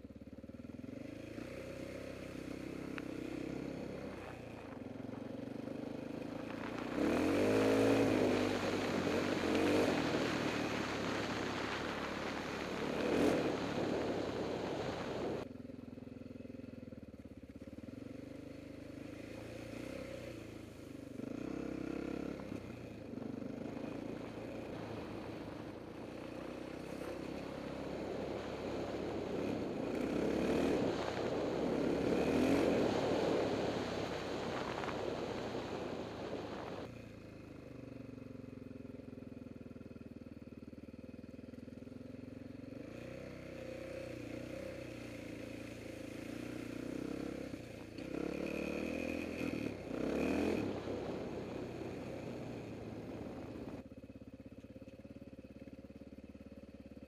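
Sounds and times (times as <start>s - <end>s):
motorcycle engine: 0.0s - 57.0s.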